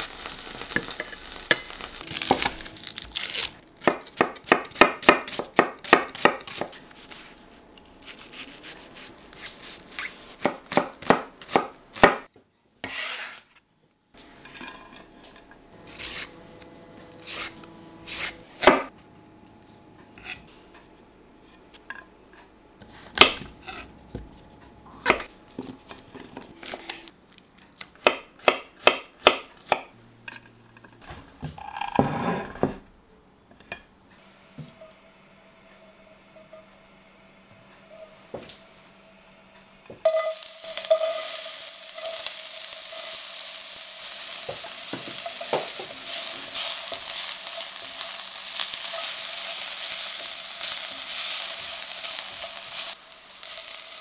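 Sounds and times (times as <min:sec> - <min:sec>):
knife chopping on wooden board: 0:03.8 - 0:06.8, 0:10.4 - 0:12.2.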